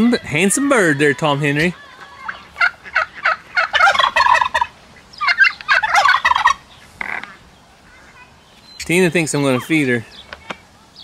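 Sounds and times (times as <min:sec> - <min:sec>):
turkey gobbling: 0:00.1 - 0:07.4.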